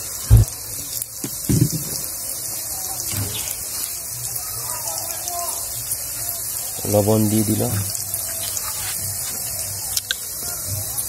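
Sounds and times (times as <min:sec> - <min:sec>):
hiss of background noise: 0:00.0 - 0:11.0
dull low thump: 0:00.3 - 0:00.6, 0:01.2 - 0:02.0.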